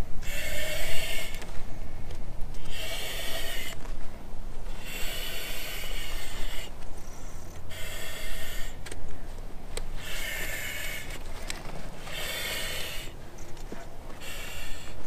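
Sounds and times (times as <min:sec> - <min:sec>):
breathing through a regulator: 0:14.2 - 0:15.0.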